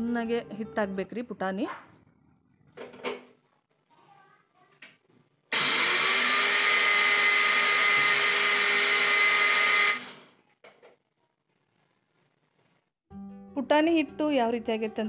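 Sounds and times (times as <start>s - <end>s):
mixer grinder motor: 5.5s - 10.2s.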